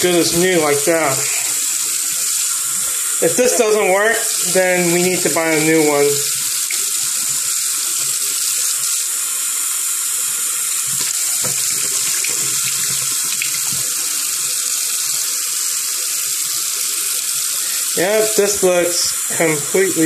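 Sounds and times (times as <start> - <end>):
tap water splashing into sink: 0.2 - 9.0, 10.2 - 15.3.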